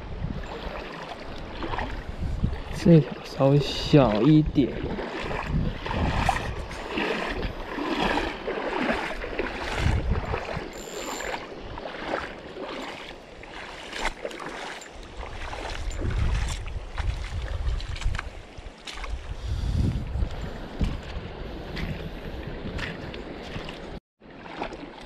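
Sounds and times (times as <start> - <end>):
wind buffeting microphone: 0.0 - 12.7, 15.0 - 24.0
stream water running: 0.0 - 25.0.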